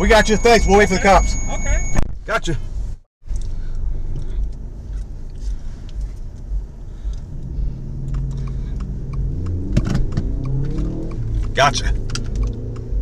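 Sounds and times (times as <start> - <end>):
engine and traffic rumble: 0.0 - 13.0
sharp clicks: 7.1 - 13.0.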